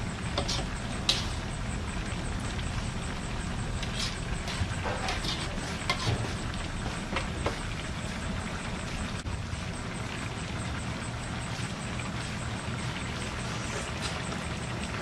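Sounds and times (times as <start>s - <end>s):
spatula scraping wok: 0.0s - 1.6s, 2.7s - 7.6s
stew simmering: 0.0s - 15.0s.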